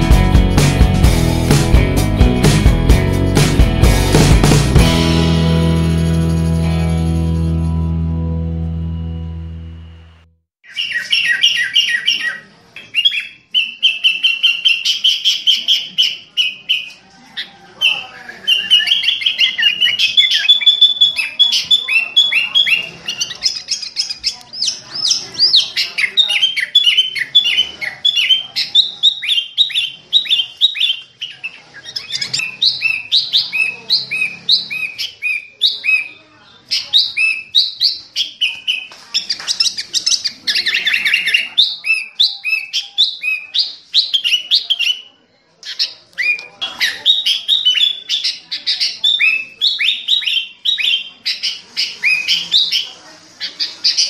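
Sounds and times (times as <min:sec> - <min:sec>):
bulbul chirping song: 0:17.8 - 0:53.0.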